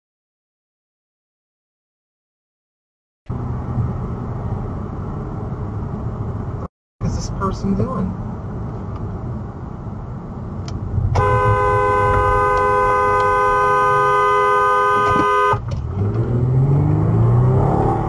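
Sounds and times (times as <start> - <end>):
low road rumble: 3.3 - 18.0
car horn blast: 11.1 - 15.7.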